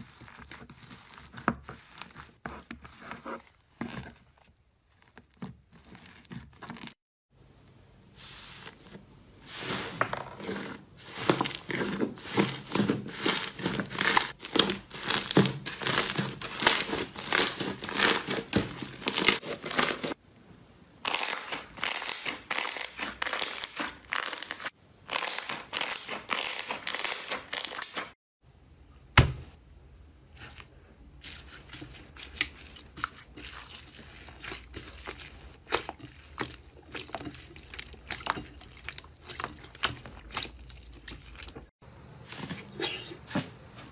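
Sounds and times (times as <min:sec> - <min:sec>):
hands squeezing slime: 0:00.0 - 0:07.0, 0:11.0 - 0:20.2, 0:21.0 - 0:28.0, 0:30.4 - 0:41.7.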